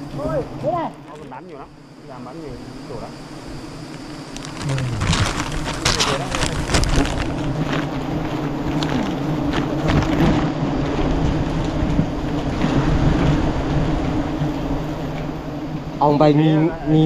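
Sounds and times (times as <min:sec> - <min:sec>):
wind buffeting microphone: 0:04.5 - 0:16.0.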